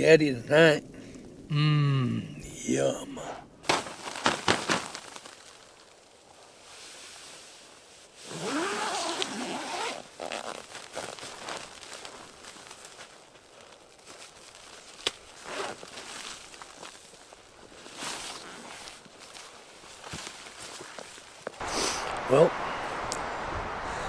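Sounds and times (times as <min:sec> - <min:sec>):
nylon tent fabric rustling: 0:03.6 - 0:23.8
tent zipper unzipping: 0:08.2 - 0:11.6, 0:15.4 - 0:15.9.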